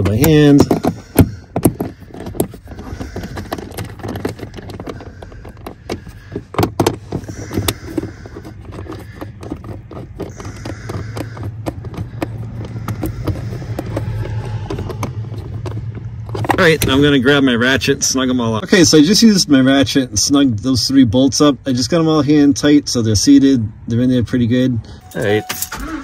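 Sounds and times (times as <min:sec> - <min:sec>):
sharp clicks and metal taps: 0:00.0 - 0:17.0.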